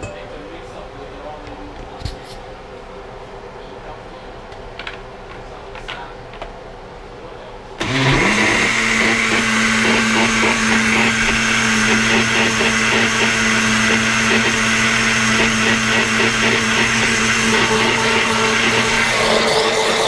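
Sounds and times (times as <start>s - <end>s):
blender motor running: 7.8s - 20.0s.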